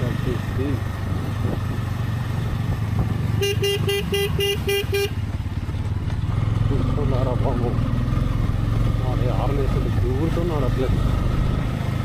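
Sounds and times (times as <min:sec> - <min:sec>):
motorcycle engine running: 0:00.0 - 0:12.0
road noise: 0:00.0 - 0:12.0
vehicle horn short beeps: 0:03.4 - 0:05.2.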